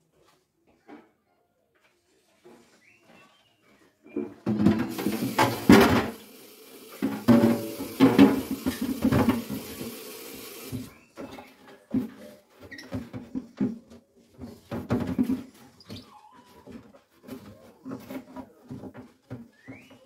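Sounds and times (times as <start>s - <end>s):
plastic bin knocking against sink: 4.4s - 6.2s, 7.0s - 10.0s
tap running into a sink: 4.6s - 10.9s.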